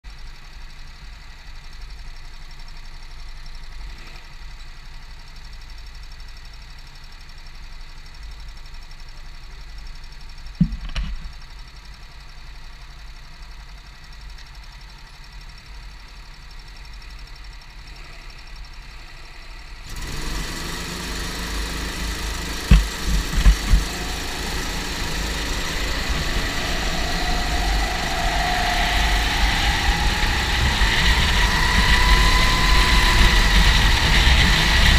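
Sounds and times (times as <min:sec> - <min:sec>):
go-kart engine: 0:00.1 - 0:34.9
sharp knocks: 0:10.6 - 0:11.3, 0:22.6 - 0:24.2.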